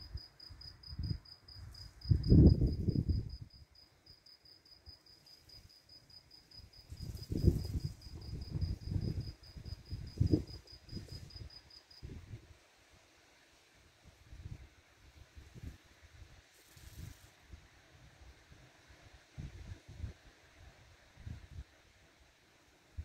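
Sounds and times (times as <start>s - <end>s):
cricket chirping: 0.0s - 12.1s.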